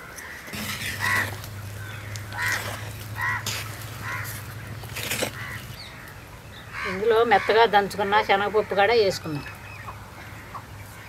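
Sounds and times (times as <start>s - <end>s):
crows cawing: 0.0s - 11.0s
wooden spatula scraping a clay pot: 0.3s - 6.0s
steady low hum: 0.5s - 7.0s.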